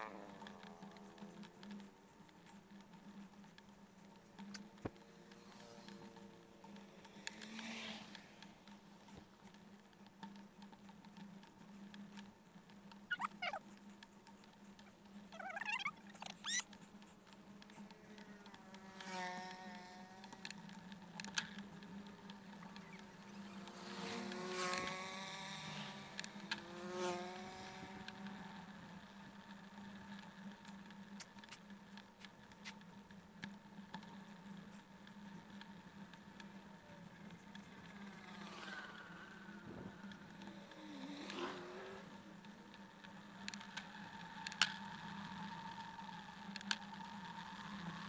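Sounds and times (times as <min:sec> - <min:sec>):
bicycle riding hum: 0:00.0 - 0:48.0
short squeaky chirps: 0:13.1 - 0:13.6, 0:15.4 - 0:16.7.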